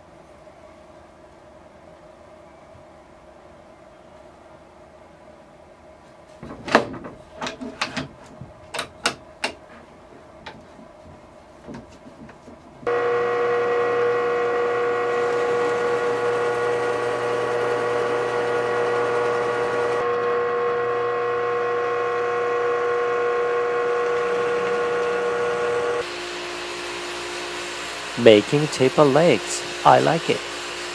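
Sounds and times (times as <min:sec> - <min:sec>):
drill press drilling wood: 0:12.9 - 0:30.9.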